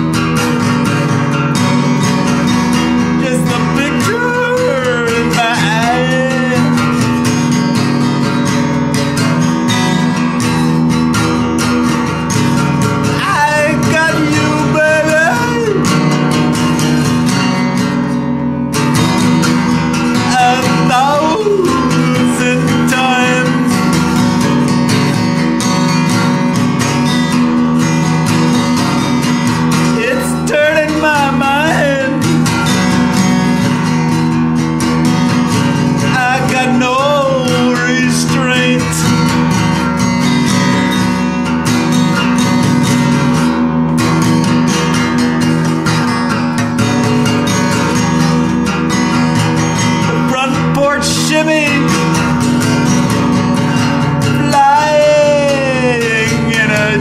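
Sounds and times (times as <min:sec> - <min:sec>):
acoustic guitar strumming: 0:00.0 - 0:57.0
wavering singing voice: 0:02.9 - 0:07.3, 0:13.1 - 0:16.5, 0:20.1 - 0:24.5, 0:29.9 - 0:32.9, 0:36.0 - 0:39.1, 0:54.2 - 0:57.0.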